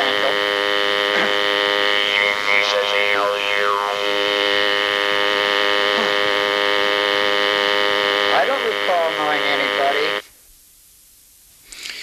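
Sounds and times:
warbling sliding electronic pitches: 0:00.0 - 0:08.2
buzzing electronic chord: 0:00.0 - 0:10.3.

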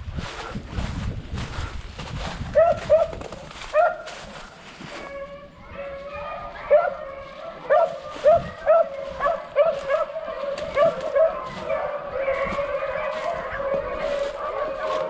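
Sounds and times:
dog howling: 0:05.0 - 0:15.0.

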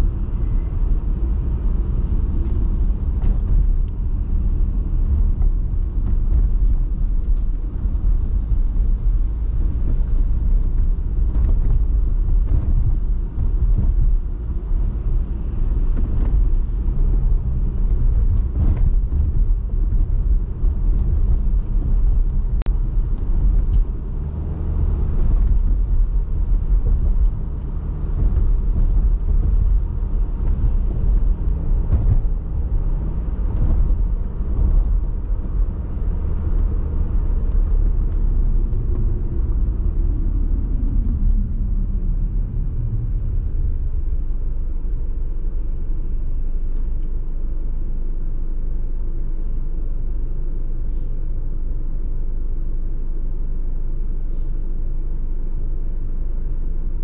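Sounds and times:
engine and tyre rumble: 0:00.0 - 0:57.0
light clicks and bumps: 0:05.1 - 0:39.4.

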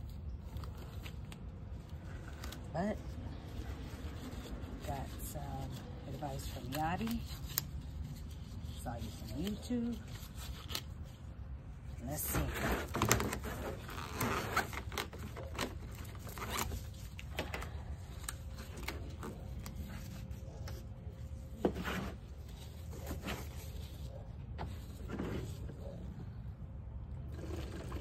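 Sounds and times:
plastic clicks and scrapes: 0:12.2 - 0:26.2.

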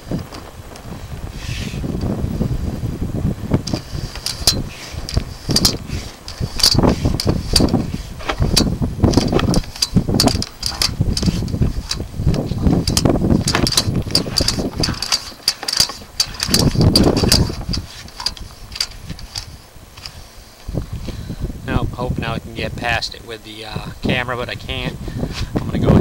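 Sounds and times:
low rumble: 0:00.0 - 0:15.1
cable clicking and knocking in drain: 0:03.6 - 0:20.1.

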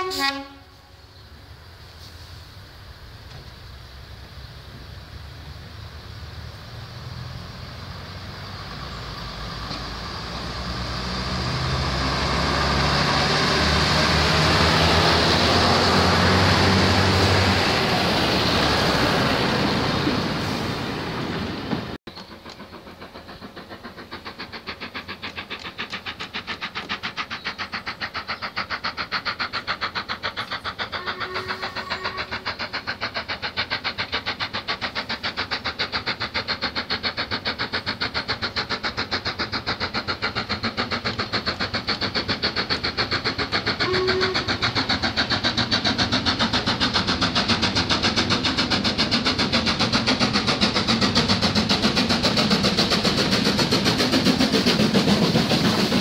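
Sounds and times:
steam locomotive chuffing: 0:00.0 - 0:56.0
steady whistle tones: 0:22.1 - 0:56.0.

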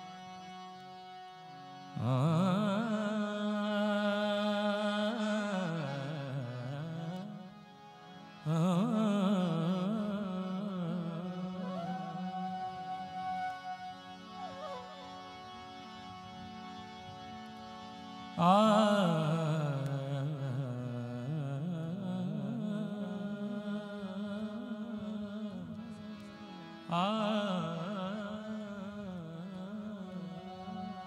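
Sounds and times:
man singing with vibrato: 0:02.0 - 0:07.5, 0:08.4 - 0:13.4, 0:18.4 - 0:31.0.

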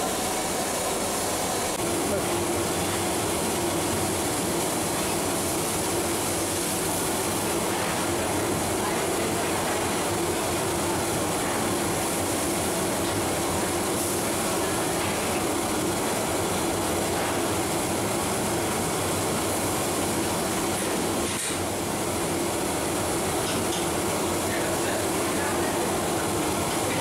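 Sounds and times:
gas burner roaring: 0:00.0 - 0:27.0.

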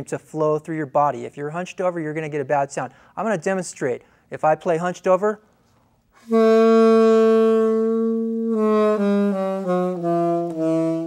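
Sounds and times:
alto saxophone playing: 0:06.2 - 0:11.0.

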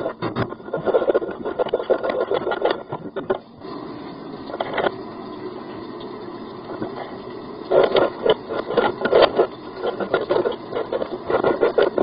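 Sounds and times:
knocking and scraping in a pipe: 0:00.0 - 0:03.5, 0:04.4 - 0:05.0, 0:06.7 - 0:12.0.

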